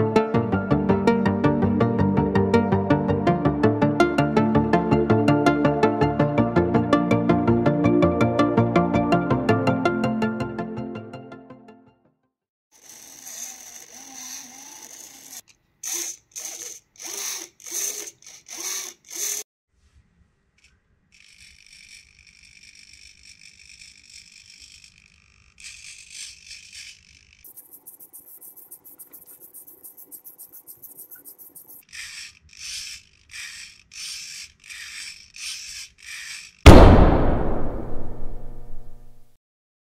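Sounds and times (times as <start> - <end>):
small servo whirring: 12.8 - 19.5, 20.6 - 36.7.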